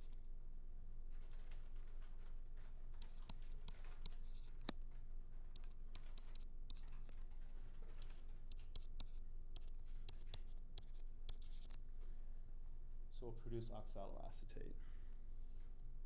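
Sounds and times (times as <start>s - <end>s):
steady low hum: 0.0s - 16.0s
stylus tapping on tablet screen: 3.0s - 4.2s, 5.6s - 6.9s, 8.0s - 11.8s.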